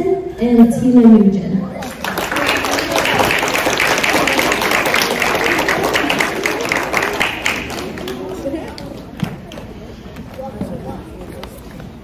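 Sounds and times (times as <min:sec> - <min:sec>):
children applauding: 0:01.8 - 0:09.6.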